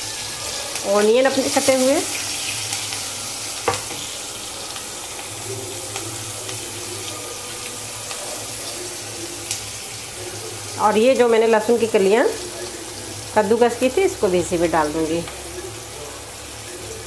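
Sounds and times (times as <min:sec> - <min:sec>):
onions sizzling in hot oil: 0:00.0 - 0:17.0
knock on metal pan: 0:03.6 - 0:04.0.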